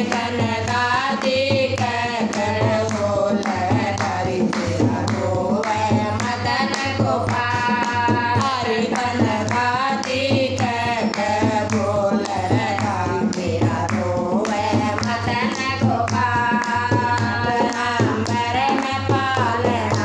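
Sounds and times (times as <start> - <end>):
hand drum: 0.0 - 20.0
hand-clapping: 0.0 - 20.0
women singing together: 0.0 - 20.0.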